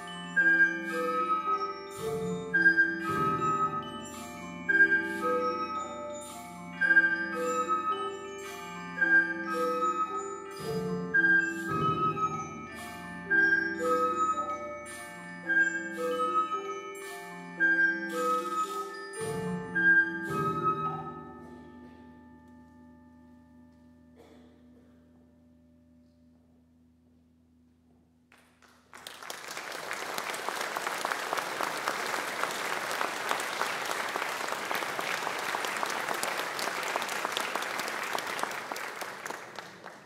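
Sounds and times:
percussion chord ringing: 0.0 - 24.3
audience applause: 28.9 - 40.0.

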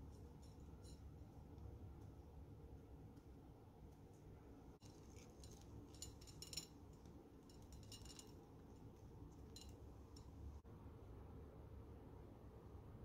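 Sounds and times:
sprinkles rattling onto a plate: 4.8 - 8.6.

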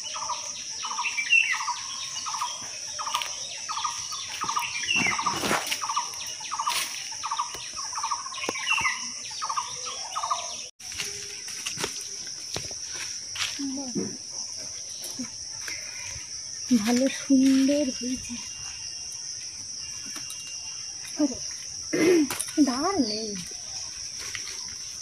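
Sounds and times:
bird calling: 0.0 - 11.4
high-pitched insect drone: 0.0 - 25.0.

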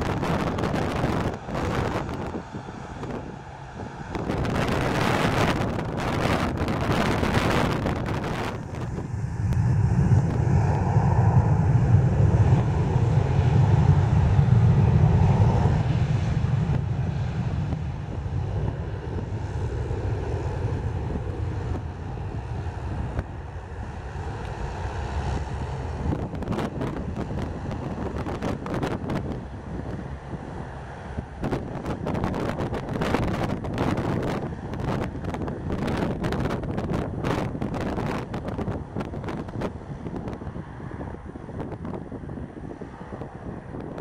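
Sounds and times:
airliner engines rumbling: 0.0 - 44.0
wind buffeting microphone: 0.0 - 44.0.

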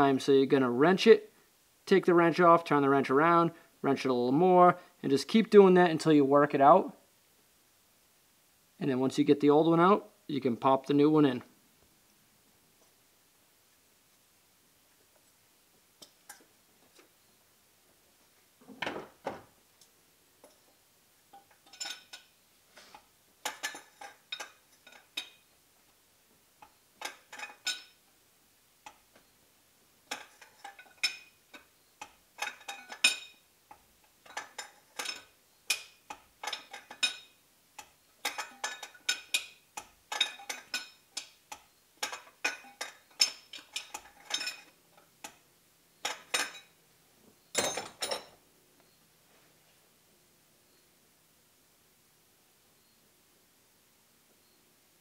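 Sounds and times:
wrench clinking on metal: 21.3 - 22.3, 23.4 - 25.5, 26.6 - 28.0, 30.1 - 45.4, 46.0 - 46.7, 47.5 - 48.4.

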